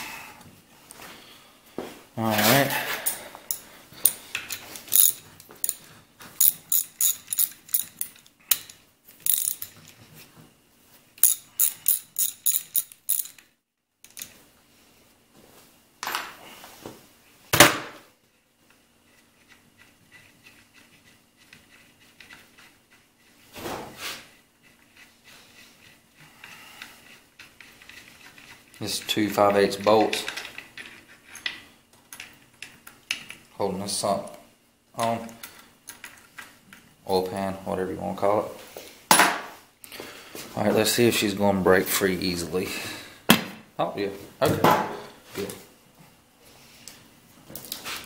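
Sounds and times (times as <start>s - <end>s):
socket ratchet clicking: 6.4s - 9.7s, 11.2s - 13.4s.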